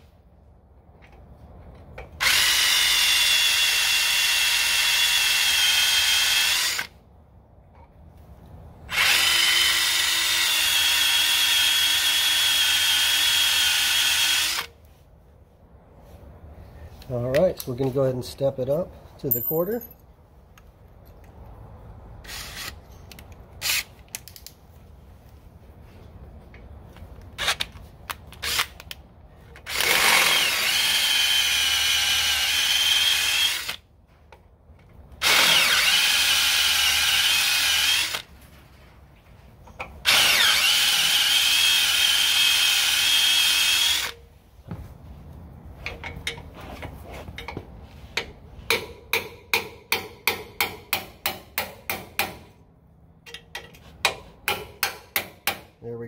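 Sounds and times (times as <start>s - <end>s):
electric drill boring steel: 29.7s - 33.8s, 35.2s - 38.2s, 40.1s - 44.2s
chisel tapping on metal: 48.2s - 52.4s, 53.3s - 55.7s.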